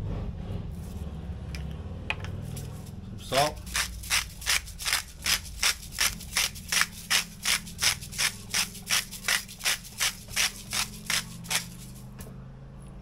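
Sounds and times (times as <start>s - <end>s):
salt grinder grinding: 2.4s - 12.2s.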